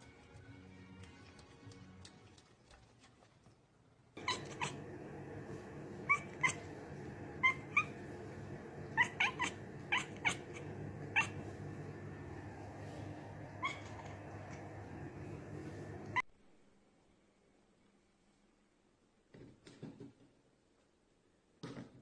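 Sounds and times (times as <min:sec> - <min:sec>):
low background hum: 0:04.1 - 0:21.5
cat chirping: 0:04.2 - 0:16.2.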